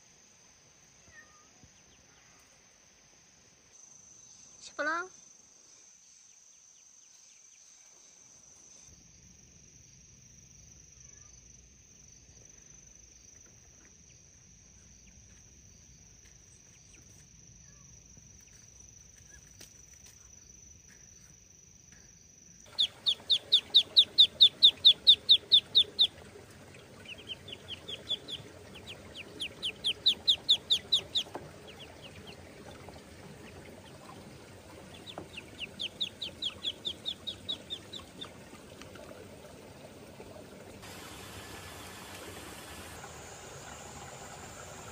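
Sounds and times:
faint high insect drone: 0:00.0 - 0:44.9
ducklings peeping: 0:22.7 - 0:39.1.

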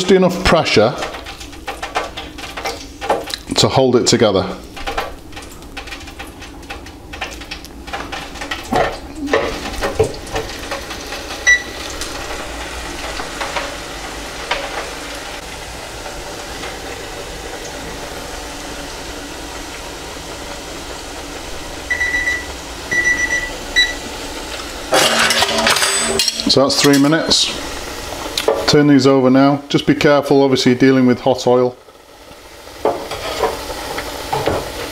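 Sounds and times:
food deep-frying in oil: 0:00.0 - 0:34.9
kitchen timer beeping: 0:11.4 - 0:11.8, 0:21.9 - 0:24.0.

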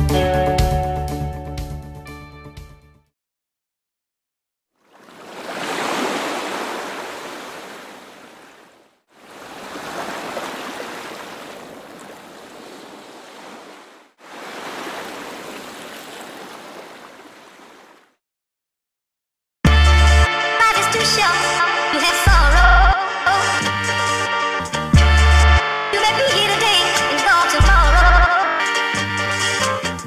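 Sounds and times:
waves breaking: 0:04.8 - 0:18.2.

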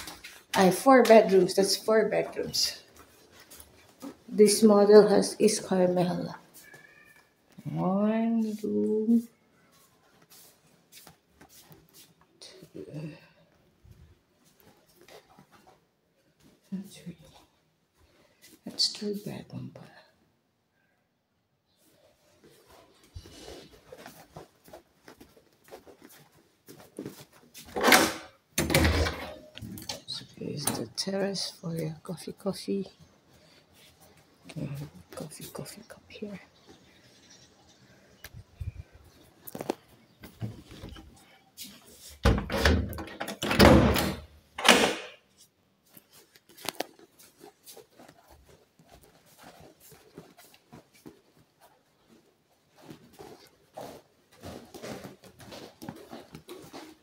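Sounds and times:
soft scuffs and taps: 0:02.7 - 0:04.3, 0:08.4 - 0:12.4, 0:21.8 - 0:27.8, 0:38.2 - 0:42.2, 0:45.4 - 0:57.0
footsteps on hard floor: 0:08.5 - 0:12.3, 0:22.4 - 0:27.8, 0:45.8 - 0:57.0
door scraping: 0:27.7 - 0:29.6.

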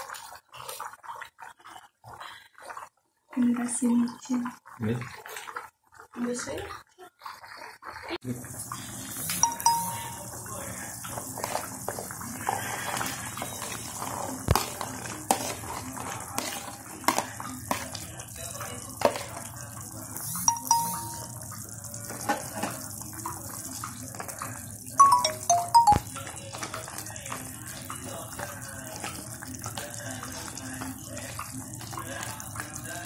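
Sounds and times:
ladle stirring liquid: 0:00.0 - 0:03.3, 0:08.7 - 0:33.0
spoon scraping plastic container: 0:11.4 - 0:17.9.

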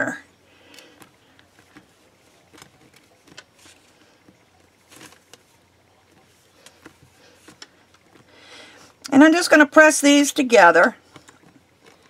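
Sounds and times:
hands handling clay: 0:00.7 - 0:09.0.

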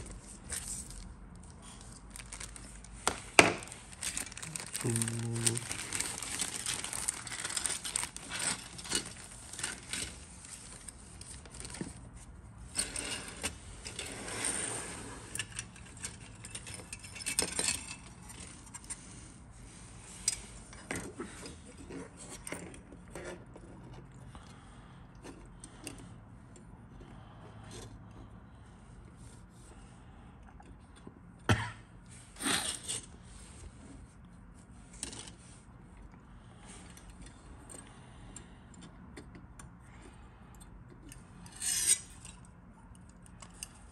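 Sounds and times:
plastic parts clicking and scraping: 0:00.0 - 0:19.3, 0:34.8 - 0:35.6, 0:36.7 - 0:43.9
plastic bag crinkling: 0:00.2 - 0:12.0.

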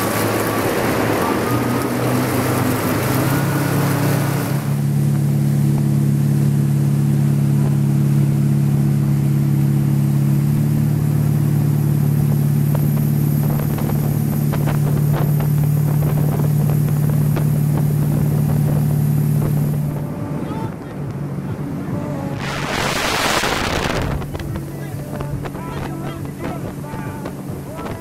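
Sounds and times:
boat engine running: 0:00.0 - 0:28.0
wind hiss: 0:22.0 - 0:28.0.

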